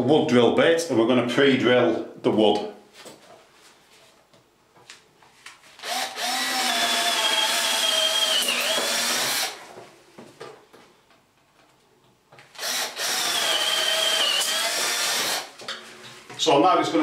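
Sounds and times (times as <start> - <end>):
cordless drill drilling wood: 5.8 - 9.6, 12.6 - 15.6.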